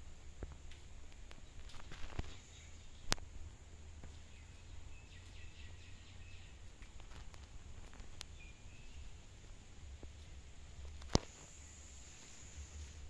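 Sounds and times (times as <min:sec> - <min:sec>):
faint chirps: 0:01.4 - 0:03.3.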